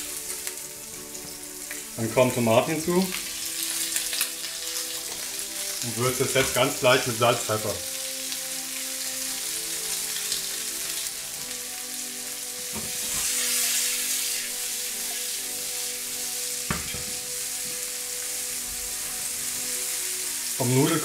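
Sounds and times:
vegetables sizzling in oil: 0.0s - 21.0s.

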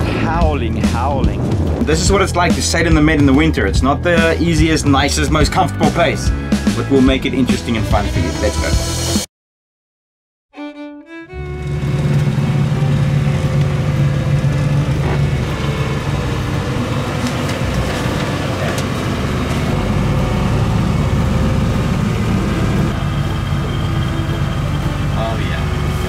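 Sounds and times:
engine drone: 10.6s - 26.0s.

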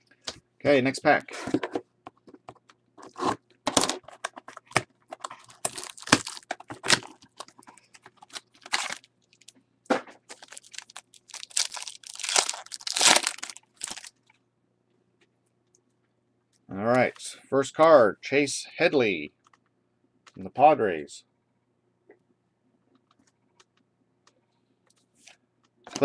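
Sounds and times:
card pack tearing and rustling: 3.0s - 9.5s, 10.3s - 14.1s.

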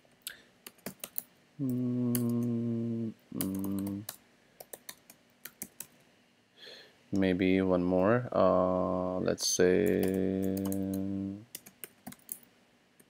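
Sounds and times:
typing on computer keyboard: 0.6s - 2.5s, 3.4s - 6.0s, 9.8s - 12.4s
man humming: 1.6s - 4.1s, 8.4s - 11.5s.

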